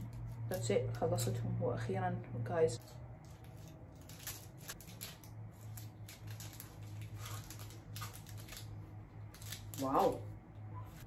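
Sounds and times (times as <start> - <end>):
low steady hum: 0.0 - 11.0
aluminium foil crinkling: 2.8 - 11.0.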